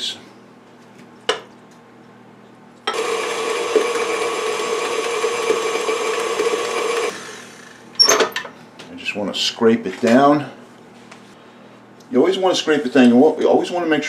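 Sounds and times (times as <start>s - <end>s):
stand mixer motor whining: 2.9s - 8.0s.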